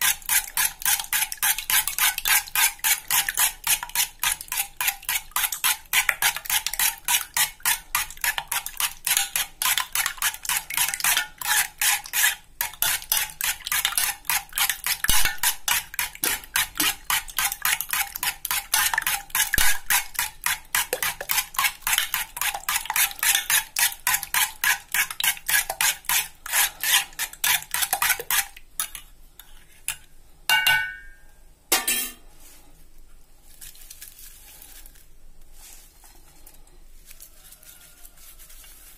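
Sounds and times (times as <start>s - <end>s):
spoon beating eggs in metal pot: 0.0s - 31.2s.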